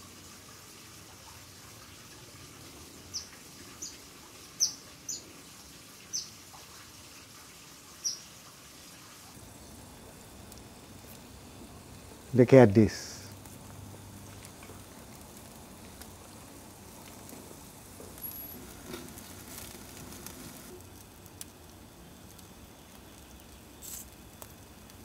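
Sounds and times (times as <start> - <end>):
fish sizzling on grill: 0.0 - 25.0
small ticks: 18.1 - 25.0.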